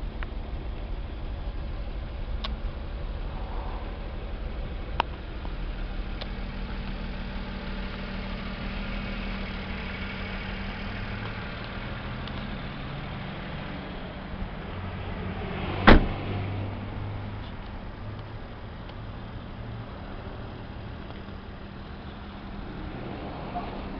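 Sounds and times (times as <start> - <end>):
truck engine idling: 0.0 - 16.1, 16.7 - 23.9
cab door slamming: 15.8 - 16.2.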